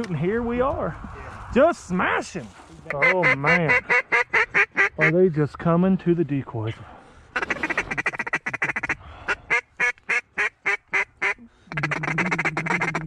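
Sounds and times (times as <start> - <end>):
duck quacking: 2.9 - 5.2, 7.4 - 13.0.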